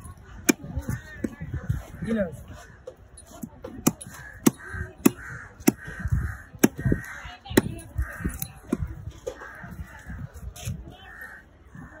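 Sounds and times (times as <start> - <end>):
knife chopping on wooden block: 3.6 - 5.9, 6.6 - 6.9.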